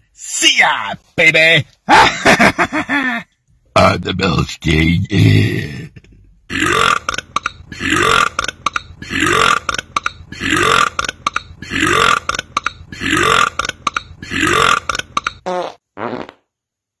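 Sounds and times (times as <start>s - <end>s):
man burping: 5.0s - 15.7s.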